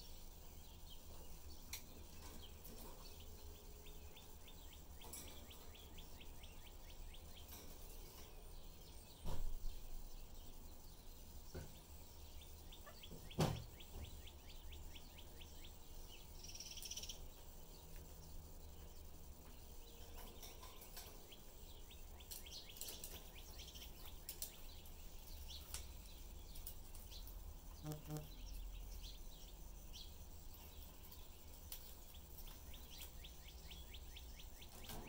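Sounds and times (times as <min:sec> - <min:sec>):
budgerigars chattering and chirping: 0:11.5 - 0:17.5, 0:28.2 - 0:35.0.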